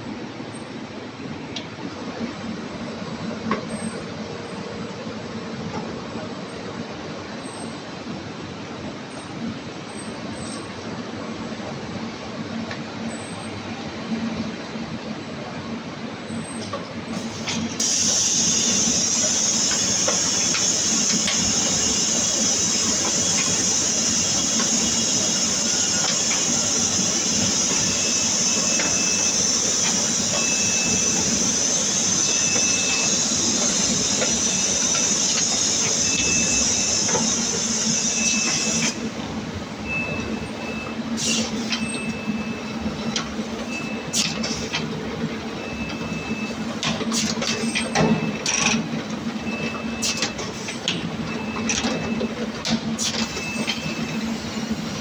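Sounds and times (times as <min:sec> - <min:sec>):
loud hiss: 0:17.2 - 0:39.2.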